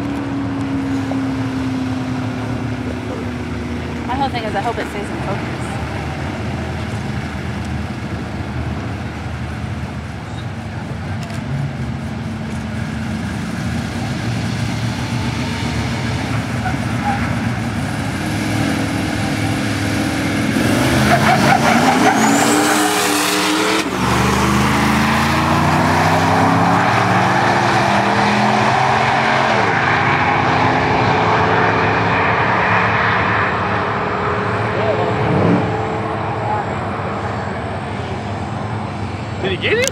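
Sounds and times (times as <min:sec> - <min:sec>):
truck engine revving: 0:00.0 - 0:39.9
tyres chattering and squealing: 0:20.6 - 0:23.8.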